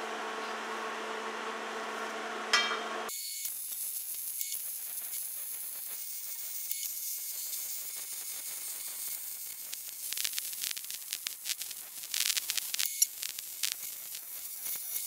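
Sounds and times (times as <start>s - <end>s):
arc welding hiss: 3.1s - 15.0s
welding sputtering crackle: 3.1s - 15.0s.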